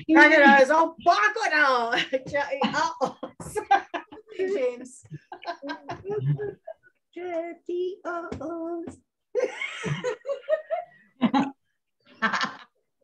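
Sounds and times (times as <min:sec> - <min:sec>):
people laughing: 0:02.0 - 0:06.9, 0:09.4 - 0:11.6, 0:12.2 - 0:12.8.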